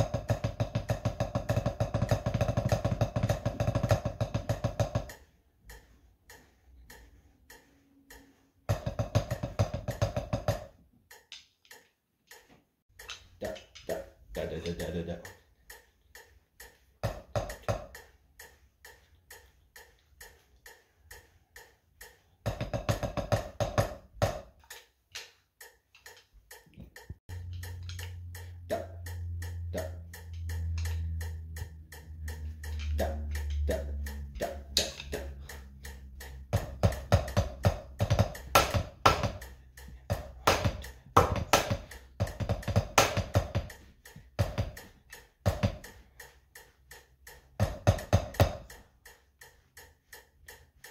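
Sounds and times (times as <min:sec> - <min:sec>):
drumsticks on practice pad: 0:00.0 - 0:50.9
low steady hum: 0:27.3 - 0:45.0.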